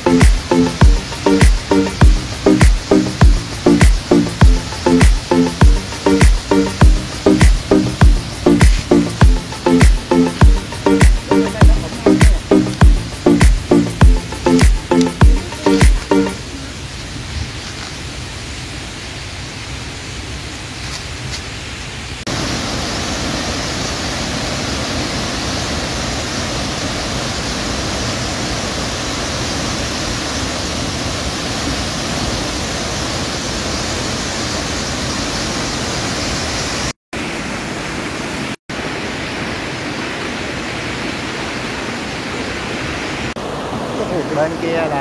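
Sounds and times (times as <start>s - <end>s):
waterfall roaring: 0.0s - 45.0s.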